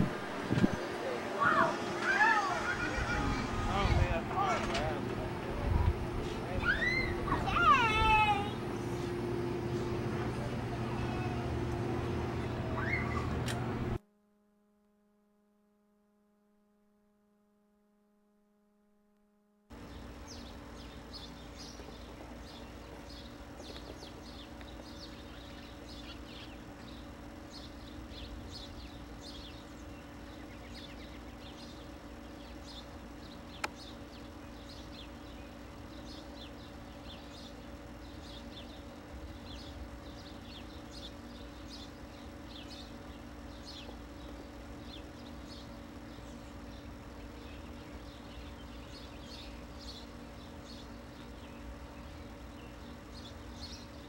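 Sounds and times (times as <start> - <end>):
steady hum and hiss: 0.0 - 14.0, 19.7 - 54.0
small birds chirping: 0.4 - 13.4, 19.7 - 54.0.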